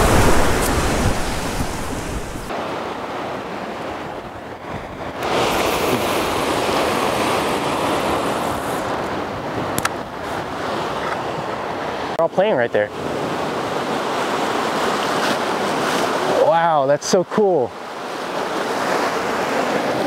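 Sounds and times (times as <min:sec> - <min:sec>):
wind on microphone: 0:00.0 - 0:02.5, 0:03.3 - 0:12.1
ocean surf on rocks: 0:00.0 - 0:20.0.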